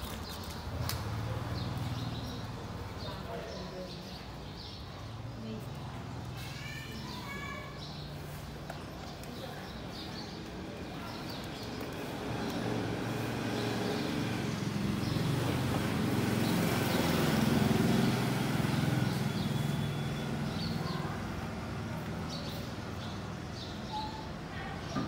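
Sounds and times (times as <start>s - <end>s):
vehicle passing on road: 11.6s - 23.4s.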